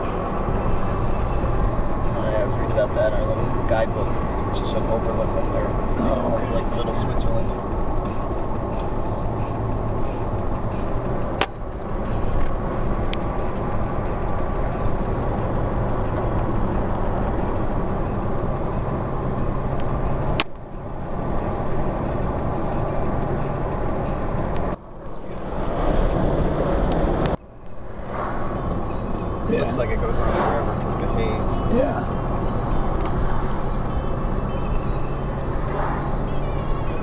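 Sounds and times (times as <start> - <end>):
car cabin road and engine noise: 0.0 - 37.0.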